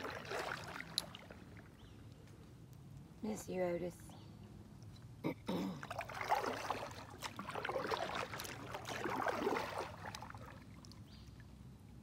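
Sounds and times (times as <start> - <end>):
water splashing and dripping: 0.0 - 3.2, 5.8 - 11.7.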